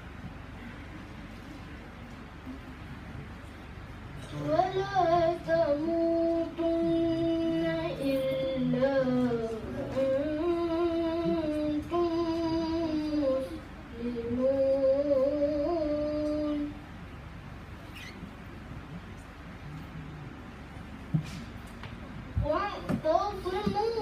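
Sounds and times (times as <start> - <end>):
child chanting recitation: 4.3 - 16.8, 22.4 - 24.0.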